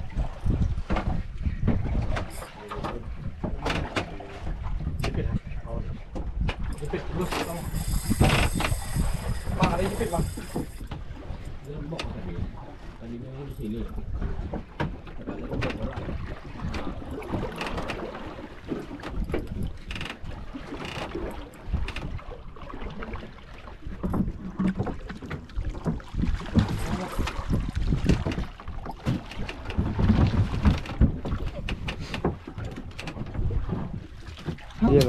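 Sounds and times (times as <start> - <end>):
water sloshing against boat hull: 0.0 - 35.0
wind buffeting microphone: 0.0 - 35.0.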